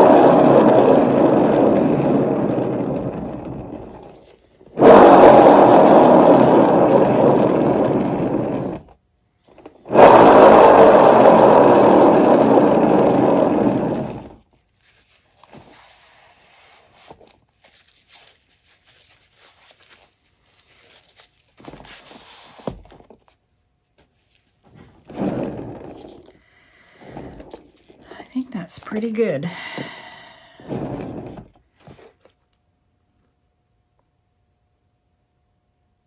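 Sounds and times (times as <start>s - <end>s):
spinning turntable whirring: 0.0s - 8.9s, 9.5s - 14.4s
faint handling sounds: 14.5s - 29.4s.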